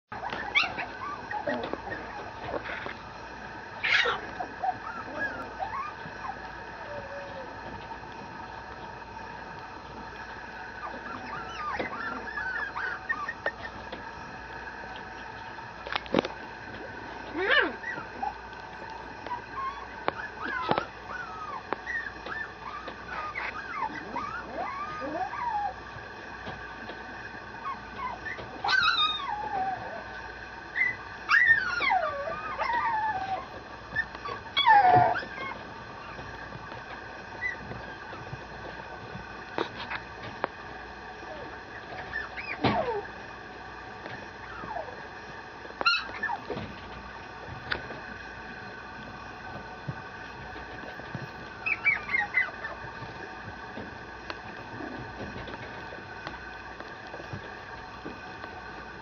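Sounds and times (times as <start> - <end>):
puppy whining: 0.1 - 15.6, 16.2 - 40.5, 41.2 - 43.2, 44.1 - 48.0, 49.0 - 58.5
faint steady hum: 0.1 - 59.0.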